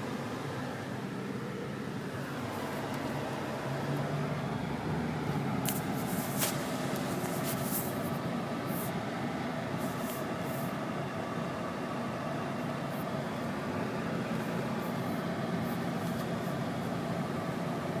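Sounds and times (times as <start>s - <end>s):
car engine and road noise: 0.0s - 18.0s.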